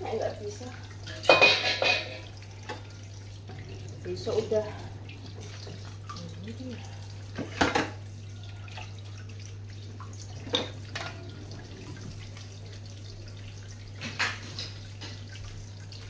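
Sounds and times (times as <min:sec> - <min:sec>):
low steady hum: 0:00.0 - 0:16.0
crockery clinking: 0:01.0 - 0:02.8.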